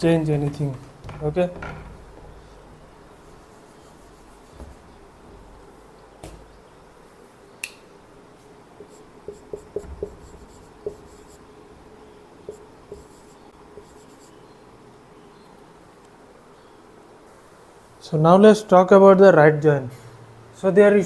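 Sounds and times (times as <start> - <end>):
marker squeaking on whiteboard: 3.2 - 5.0, 8.8 - 11.5, 12.4 - 14.4.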